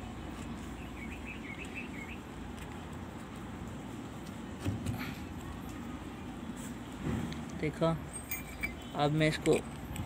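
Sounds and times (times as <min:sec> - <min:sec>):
bird chirping: 0:00.7 - 0:02.4.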